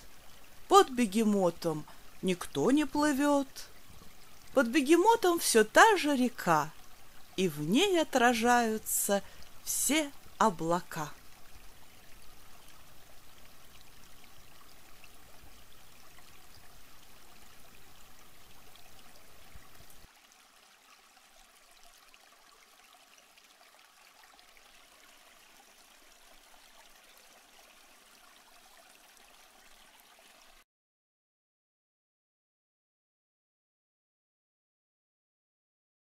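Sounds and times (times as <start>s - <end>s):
running water rushing: 0.0s - 30.6s.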